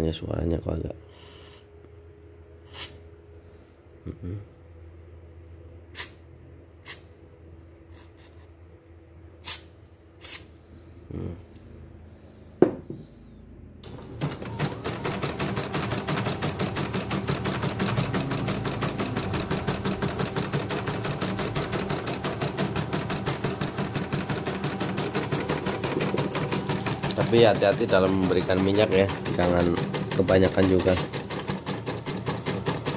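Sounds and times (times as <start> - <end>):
embroidery machine stitching clatter: 13.8 - 32.9.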